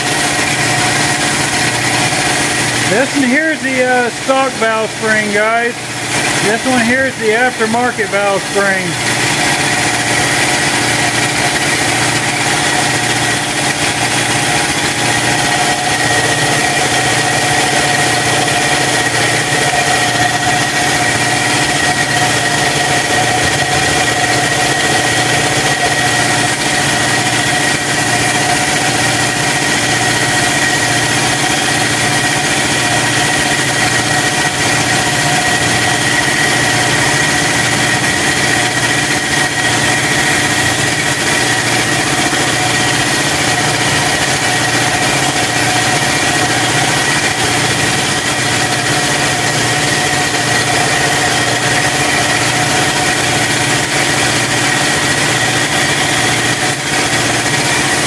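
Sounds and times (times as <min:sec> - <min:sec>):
air compressor running: 0:00.0 - 0:58.0.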